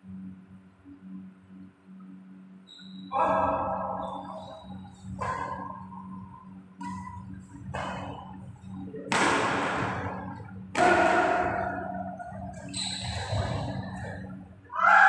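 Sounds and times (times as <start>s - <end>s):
steady low hum: 0.0s - 15.0s
rackets hitting shuttlecock: 5.1s - 6.0s, 6.8s - 13.7s.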